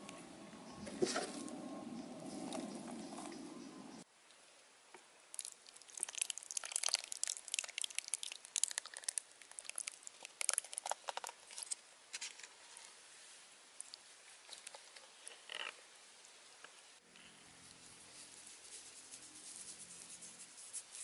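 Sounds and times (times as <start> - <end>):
low background noise: 0.0 - 21.0
sauce pouring and spattering: 5.4 - 10.9.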